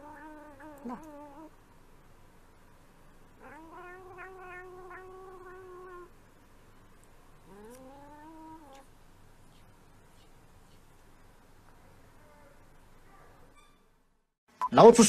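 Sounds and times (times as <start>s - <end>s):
cat meowing: 3.4s - 6.1s.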